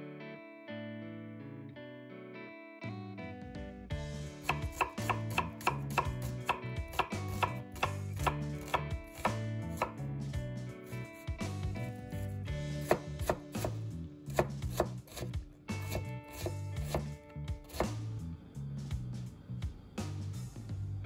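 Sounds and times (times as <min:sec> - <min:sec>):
background music: 0:00.0 - 0:21.0
knife chopping on cutting board: 0:04.4 - 0:10.0, 0:12.8 - 0:18.0.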